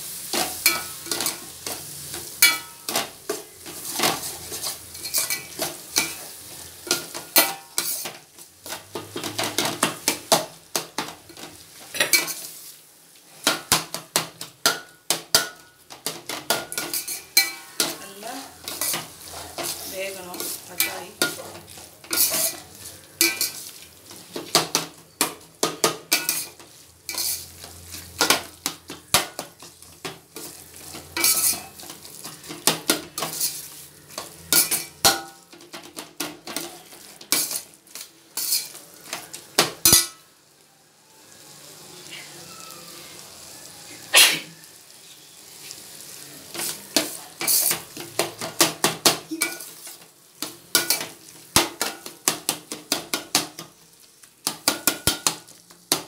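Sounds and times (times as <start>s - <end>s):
food sizzling: 0.0s - 56.0s
metal spoon scraping a pot: 16.3s - 18.0s, 18.6s - 23.7s, 26.1s - 28.4s, 30.4s - 35.0s, 36.5s - 38.8s, 46.6s - 47.8s.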